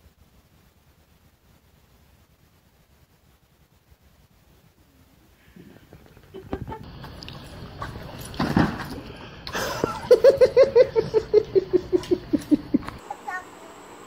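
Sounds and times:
person laughing hard: 6.1s - 6.9s, 9.5s - 13.0s
knocks and rustling: 7.8s - 9.1s.

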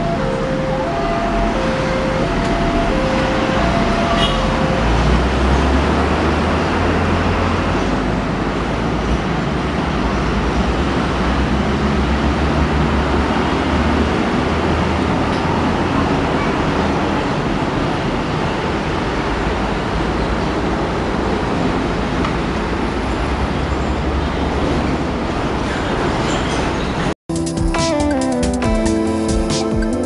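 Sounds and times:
level crossing two-tone alarm: 0.0s - 5.5s
motorcycle traffic rumble: 0.0s - 30.0s
passenger train moving away: 0.0s - 30.0s.

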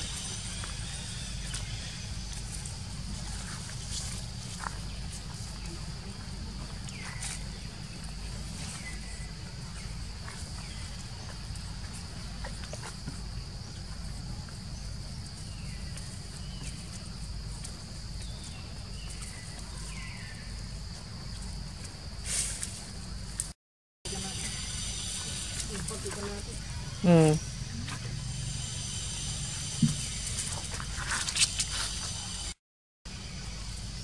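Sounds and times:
high-pitched insect drone: 0.0s - 12.1s, 24.1s - 32.6s.

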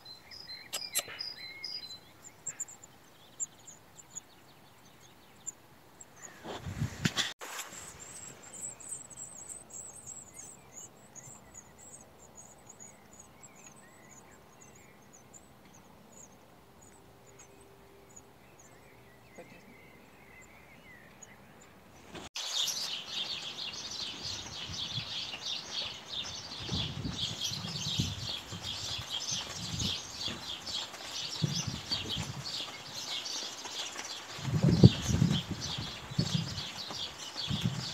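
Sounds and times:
nestlings begging calls: 0.3s - 4.3s, 7.8s - 21.3s.

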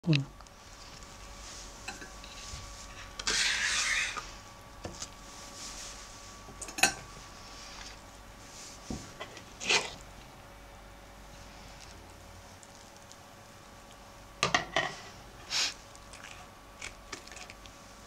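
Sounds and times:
metal spoon scraping minced meat: 2.0s - 4.2s.

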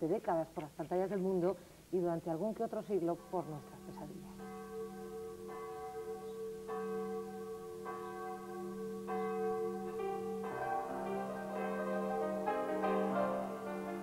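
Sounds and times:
church bell tolling: 3.1s - 14.0s
music: 9.9s - 14.0s.

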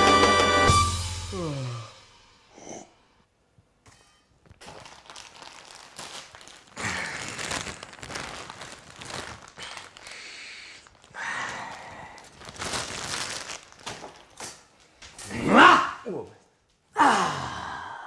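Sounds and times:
plastic packet crinkling: 4.4s - 15.1s.

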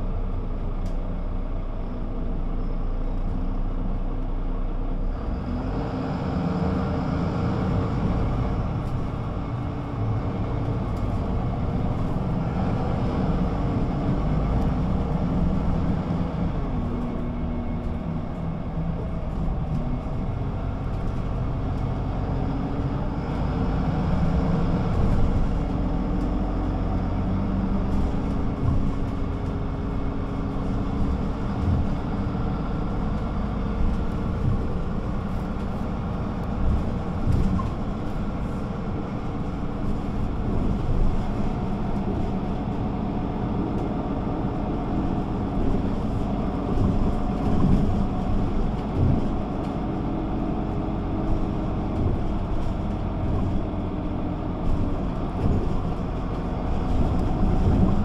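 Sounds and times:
bus engine running: 0.0s - 58.0s
low knocks and rattles: 24.2s - 42.8s, 44.9s - 58.0s.

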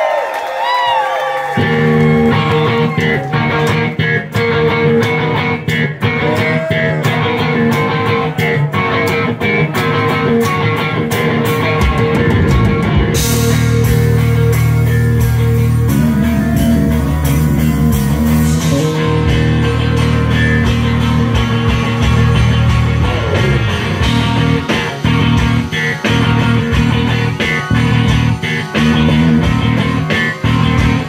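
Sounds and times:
bass guitar: 1.5s - 31.0s
electric guitar bent notes: 1.6s - 31.0s
drums with cymbals: 11.4s - 31.0s.

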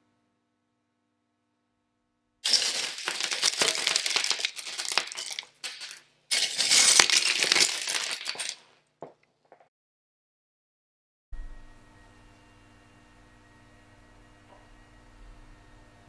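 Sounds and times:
plastic bricks clattering onto hard surface: 2.4s - 8.7s.

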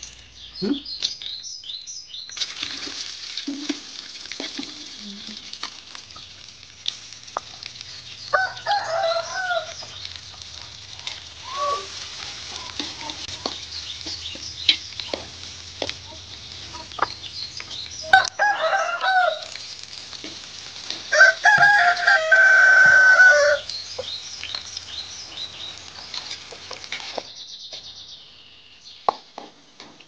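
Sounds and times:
food sizzling in hot oil: 0.0s - 27.5s
chicken call: 8.3s - 10.0s, 11.3s - 13.6s, 21.1s - 24.1s
rooster crowing: 8.3s - 10.0s, 11.4s - 12.0s, 18.0s - 19.6s, 21.1s - 23.7s.

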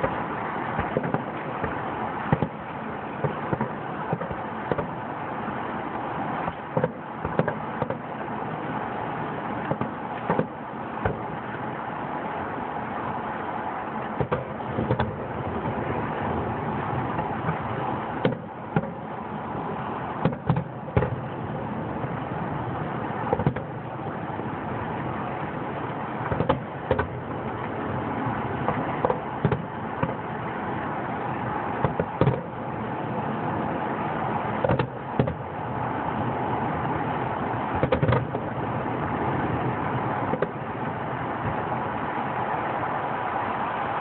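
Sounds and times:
firework shells bursting: 0.0s - 5.1s, 6.2s - 8.8s, 9.5s - 11.7s, 19.9s - 21.5s
steady background noise: 0.0s - 44.0s.

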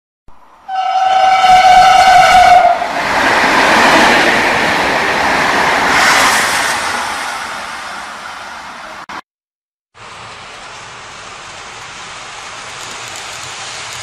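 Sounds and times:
train running past on rails: 0.5s - 9.2s, 10.0s - 14.0s
train horn: 0.7s - 2.9s.

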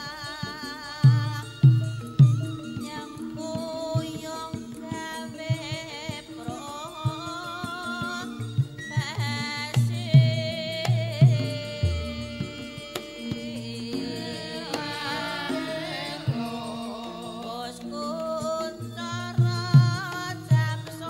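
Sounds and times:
hand drum strokes: 9.0s - 21.0s
person singing: 10.1s - 21.0s.

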